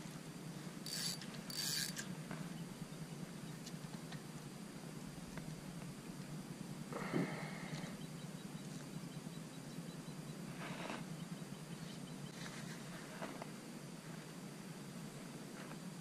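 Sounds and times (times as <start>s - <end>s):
air noise: 0.0s - 16.0s.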